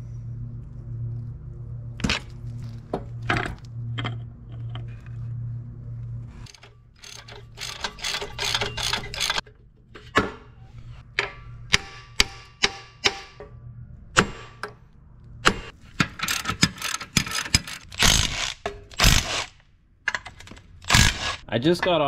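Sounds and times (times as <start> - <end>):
ratchet wrench clicking: 6.5 - 9.4, 16.2 - 19.5
sharp metal knocks: 11.2 - 13.5.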